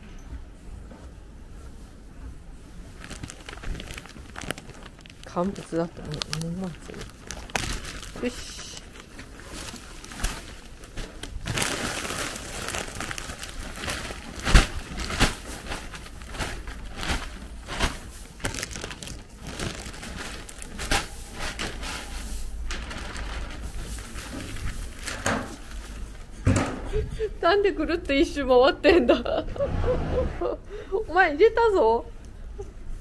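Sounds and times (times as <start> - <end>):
feed bag crinkling and rustling: 2.7 - 26.4.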